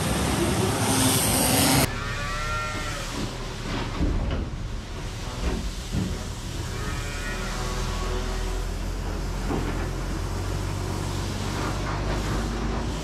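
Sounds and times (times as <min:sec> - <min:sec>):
engine running: 0:00.0 - 0:02.4, 0:03.1 - 0:13.0
cow mooing: 0:01.9 - 0:03.2, 0:06.6 - 0:08.6.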